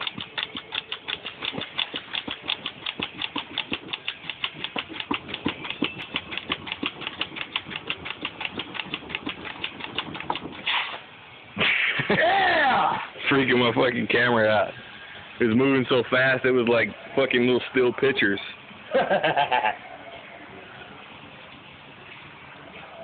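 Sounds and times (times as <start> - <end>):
rapid even clicking: 0.0 - 10.8.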